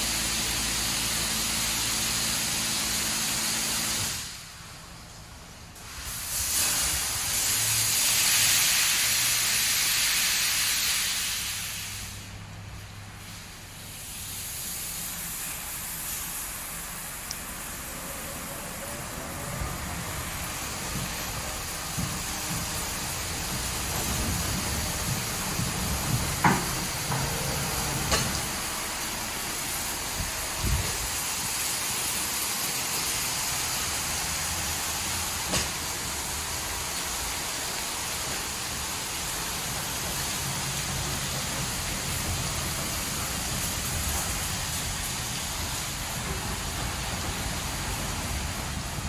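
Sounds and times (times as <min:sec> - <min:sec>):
high-pressure water spray hissing: 0:00.0 - 0:04.7, 0:05.8 - 0:49.0.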